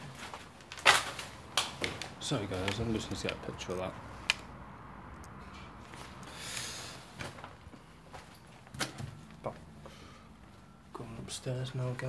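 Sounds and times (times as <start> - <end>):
sharp sniff through the nose: 5.6 - 7.1.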